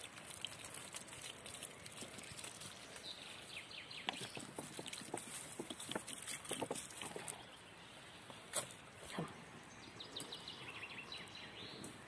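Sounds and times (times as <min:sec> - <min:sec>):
dry leaves rustling and crackling: 0:00.0 - 0:03.6, 0:04.7 - 0:07.4.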